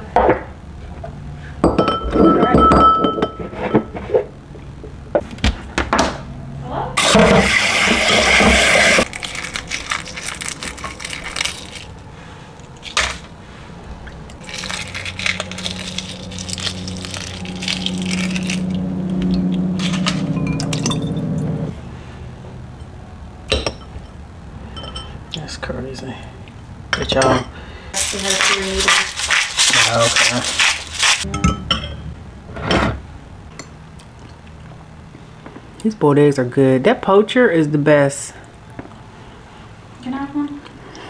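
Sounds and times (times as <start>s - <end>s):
eggshell cracking: 9.0s - 12.0s, 14.2s - 20.9s.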